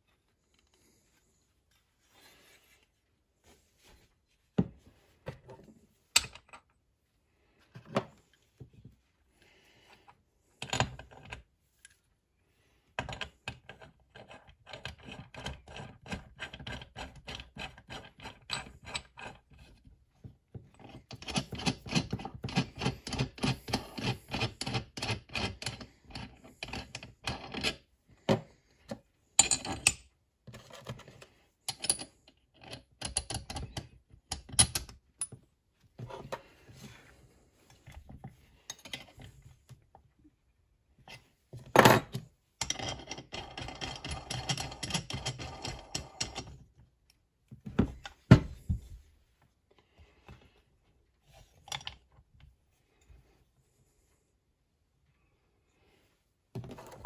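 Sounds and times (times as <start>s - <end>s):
metal parts clicking and rubbing: 42.0s - 46.5s.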